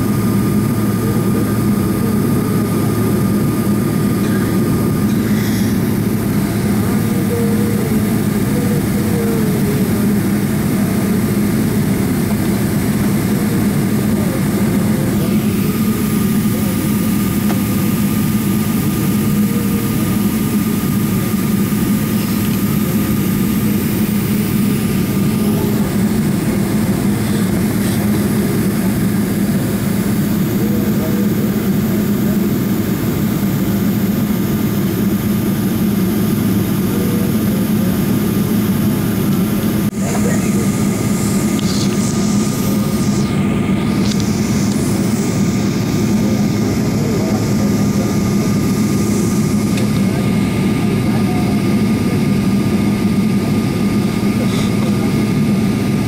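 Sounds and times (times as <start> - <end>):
airliner cabin engine drone: 0.0 - 56.0
thin steady whine: 0.0 - 56.0.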